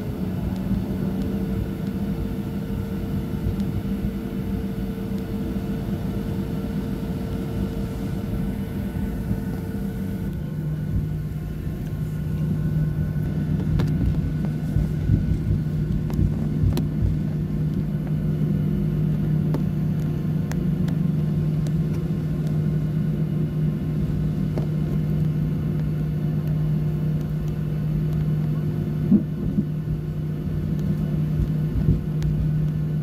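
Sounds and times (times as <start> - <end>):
low rumble: 0.0 - 25.0
jet engines humming: 0.0 - 33.0.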